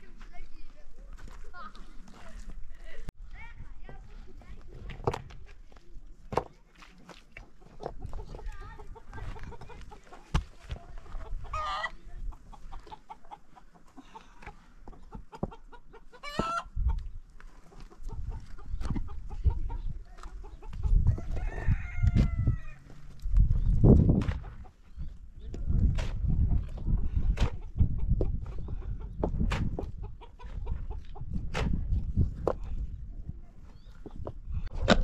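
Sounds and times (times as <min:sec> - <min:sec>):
chickens clucking: 0:07.3 - 0:22.8, 0:23.6 - 0:35.0
rooster crowing: 0:21.1 - 0:22.8.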